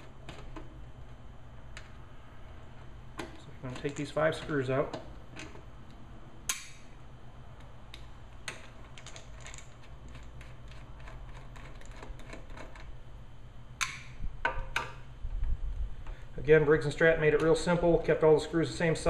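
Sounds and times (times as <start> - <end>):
faint low hum: 0.0 - 19.0
sharp metallic clicks: 6.4 - 6.9.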